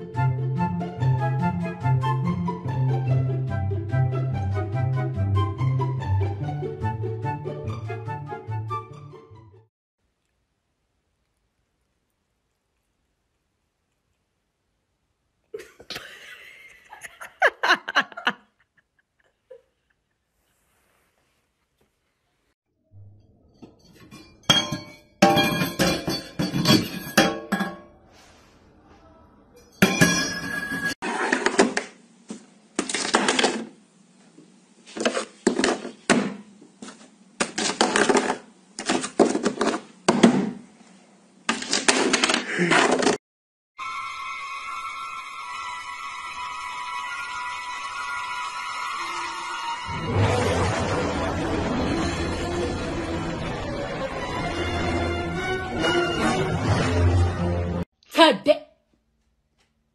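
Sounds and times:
person laughing: 0:15.6 - 0:20.2.

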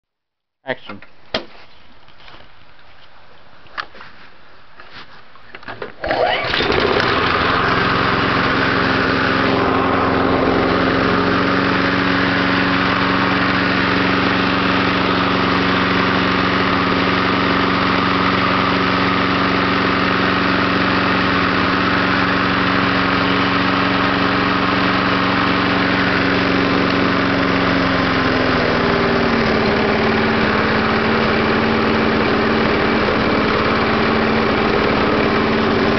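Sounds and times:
pull rope starter clicks: 0:05.6 - 0:07.2
lawn mower engine running: 0:05.8 - 0:35.9.

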